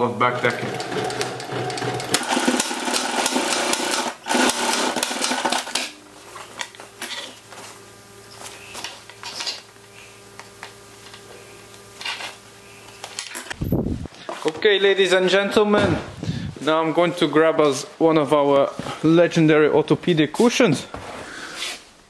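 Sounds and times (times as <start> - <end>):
sewing machine running: 0.0 - 5.9.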